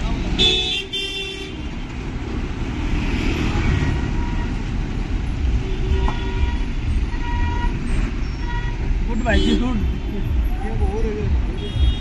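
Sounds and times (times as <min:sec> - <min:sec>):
vehicle engines rumbling: 0:00.0 - 0:12.0
vehicle horn: 0:00.4 - 0:01.7, 0:03.7 - 0:04.7, 0:05.4 - 0:10.5, 0:11.5 - 0:12.0.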